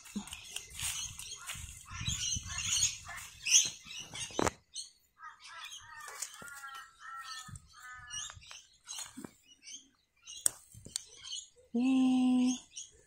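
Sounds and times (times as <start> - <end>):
leaves rustling: 0.0 - 4.0
bird chirping: 0.0 - 13.0.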